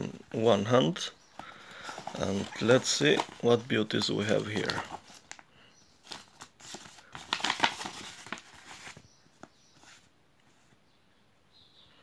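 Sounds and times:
plastic sleeve crinkling: 1.4 - 9.0.

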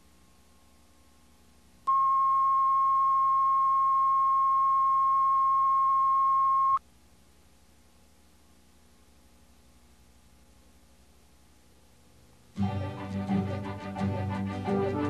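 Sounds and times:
faint low hum: 0.0 - 12.7
electronic test tone: 1.9 - 6.8.

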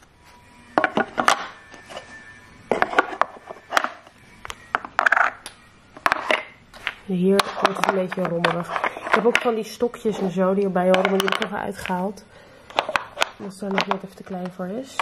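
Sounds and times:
wooden blocks knocking together: 0.8 - 1.6, 2.7 - 9.6, 10.9 - 12.0, 12.7 - 14.1.

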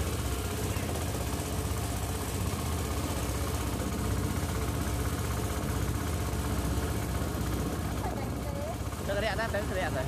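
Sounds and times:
motorboat engine running: 0.0 - 10.0
water rushing along hull: 0.0 - 10.0.

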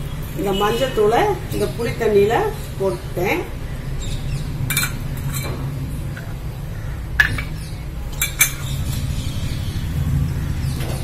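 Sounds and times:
steady low hum: 0.0 - 11.0
kitchen bowls clinking: 4.6 - 6.4, 7.2 - 9.0.

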